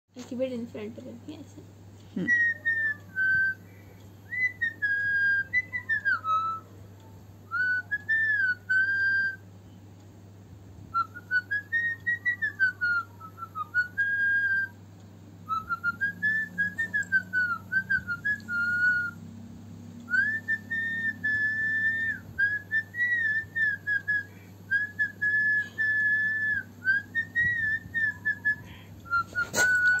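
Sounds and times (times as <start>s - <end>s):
person whistling a tune: 2.2s - 6.7s, 7.5s - 9.4s, 10.9s - 14.8s, 15.4s - 19.2s, 20.1s - 30.0s.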